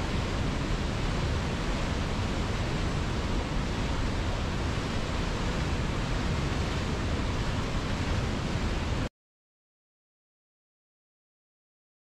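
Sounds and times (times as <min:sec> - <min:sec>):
rushing noise with low rumble: 0:00.0 - 0:09.1.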